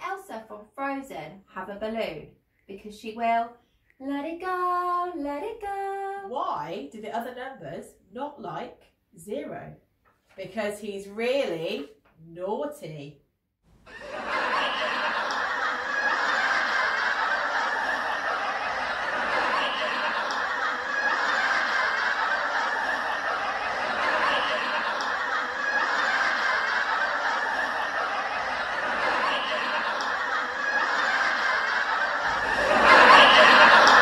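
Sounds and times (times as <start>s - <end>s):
looped recorded laughter: 13.9s - 34.0s.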